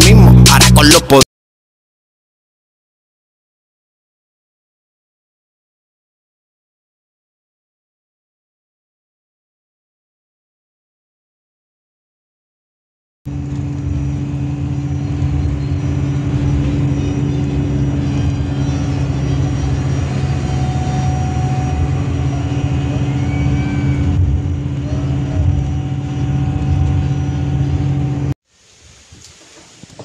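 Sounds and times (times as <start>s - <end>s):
bus engine drone: 0.0s - 1.2s, 13.3s - 28.4s
road noise: 13.3s - 30.0s.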